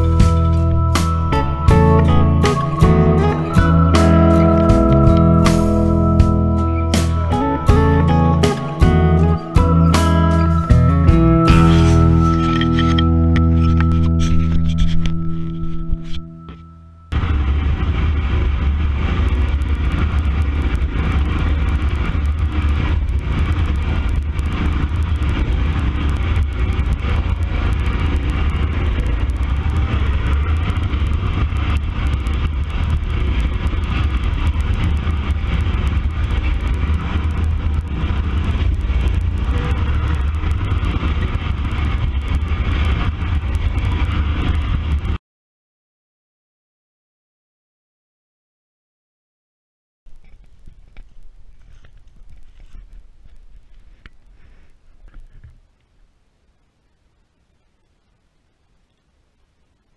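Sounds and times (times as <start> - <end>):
riding mower running: 0.0 - 45.2.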